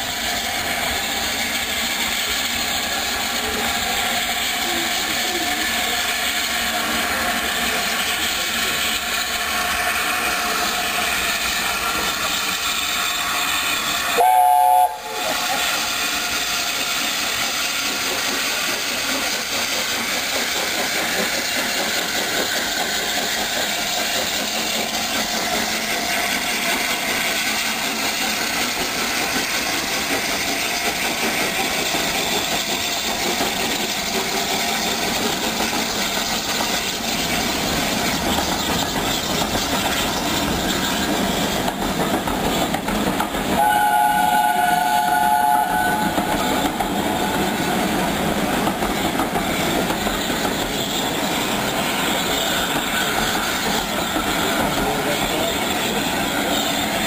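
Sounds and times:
steam locomotive running past: 0.0s - 57.0s
steam whistle blast: 14.1s - 15.6s, 43.6s - 46.3s.

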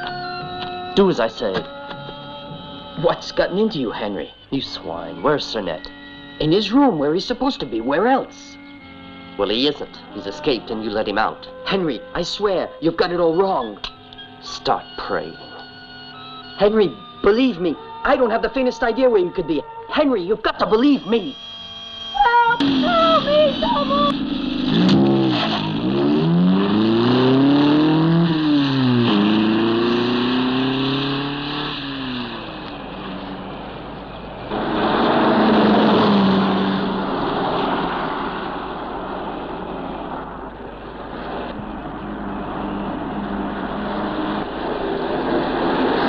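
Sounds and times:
van engine accelerating: 0.0s - 18.0s, 20.9s - 46.0s
rushing noise: 22.6s - 46.0s.

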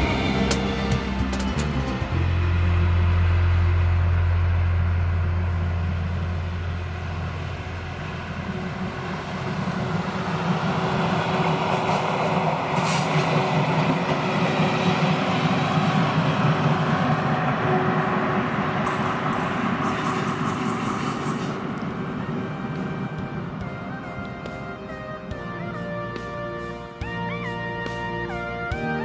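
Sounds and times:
low steady hum: 0.0s - 11.2s
train wheels rumbling on rails: 0.0s - 29.0s.

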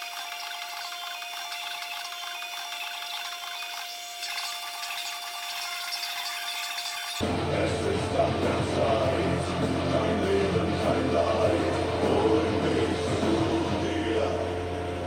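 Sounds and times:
rotary tool grinding: 0.0s - 7.2s.

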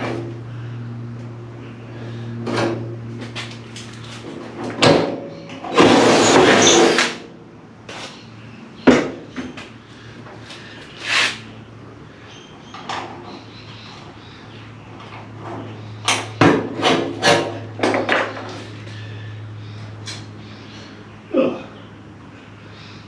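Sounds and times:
sharp knocks and clatter of parts: 2.4s - 7.2s, 8.8s - 10.4s, 15.0s - 18.8s.

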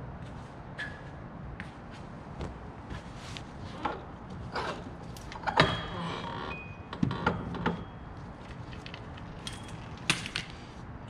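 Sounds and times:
metal tools clanking: 7.4s - 10.6s.

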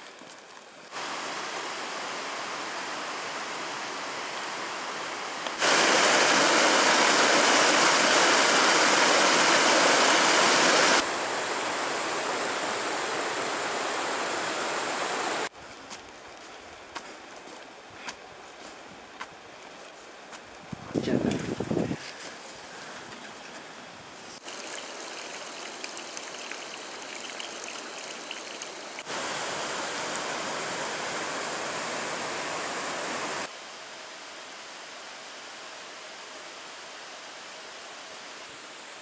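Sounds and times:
stream rushing over rocks: 0.9s - 4.8s, 5.6s - 15.5s, 24.4s - 33.5s.

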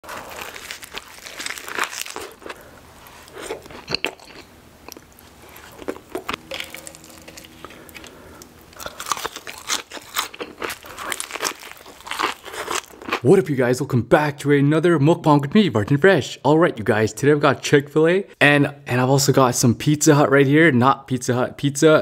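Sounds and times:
crunchy bites into fried chicken: 0.0s - 2.6s, 8.8s - 13.2s
wet chewing: 0.0s - 13.2s.

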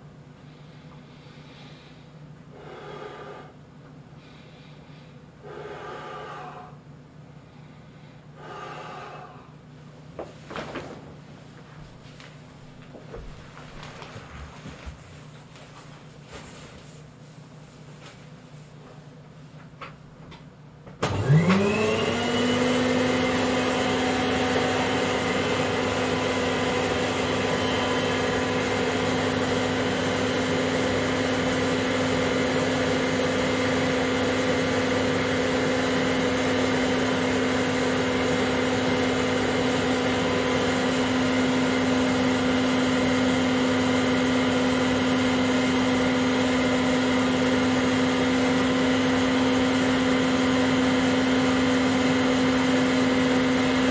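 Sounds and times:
vacuum cleaner motor whining: 21.0s - 53.9s.

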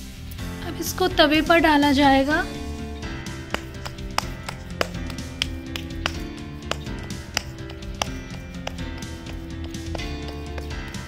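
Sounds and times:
background music: 0.0s - 11.0s
hands slapping dough: 3.2s - 11.0s.

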